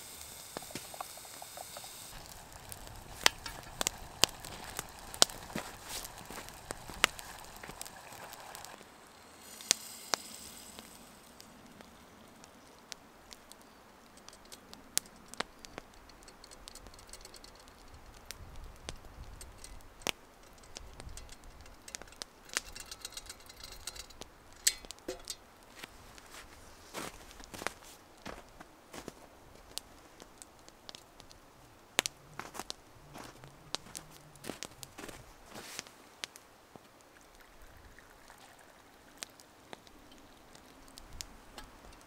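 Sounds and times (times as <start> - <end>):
campfire crackling and popping: 0.0 - 42.0
faint sizzling: 0.0 - 42.0
sauce pouring from metal pot: 0.6 - 11.3, 37.1 - 39.4.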